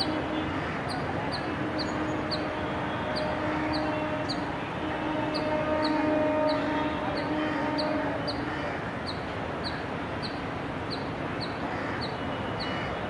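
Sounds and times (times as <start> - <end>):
train horn chord: 0.0 - 0.7, 1.4 - 8.6
train rumbling: 0.0 - 13.0.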